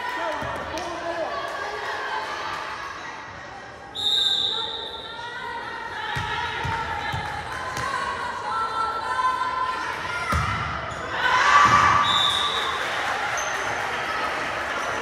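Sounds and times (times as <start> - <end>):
volleyball thumping on gym floor: 10.3 - 10.7.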